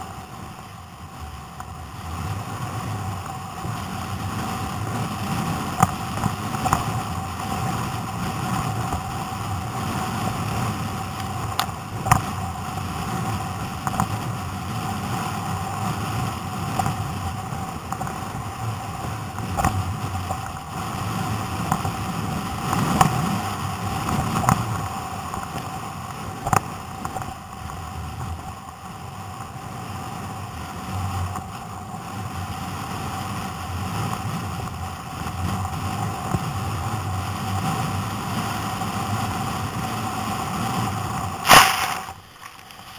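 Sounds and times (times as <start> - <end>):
water slapping against kayak hull: 41.4 - 42.9.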